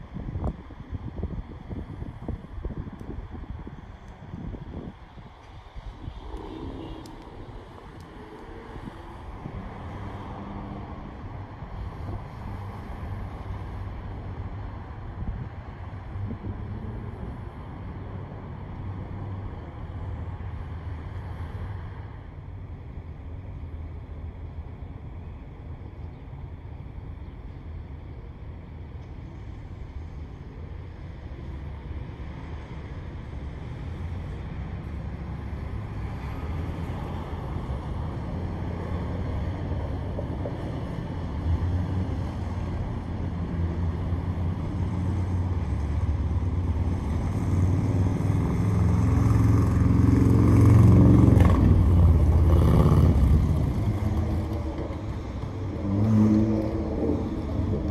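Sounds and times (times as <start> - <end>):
vehicle engine passing: 5.9 - 11.1, 35.0 - 57.9.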